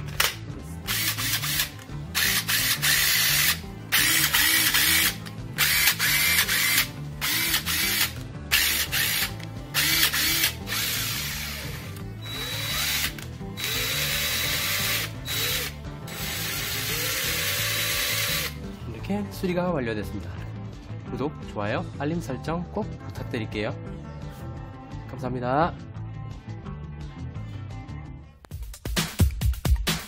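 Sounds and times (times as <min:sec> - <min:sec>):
impact wrench running: 0:00.9 - 0:18.6.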